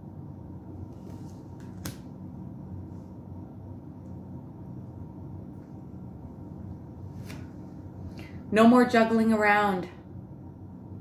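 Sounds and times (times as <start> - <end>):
low room hum: 0.0 - 11.0
cards clicking on table: 1.0 - 2.1.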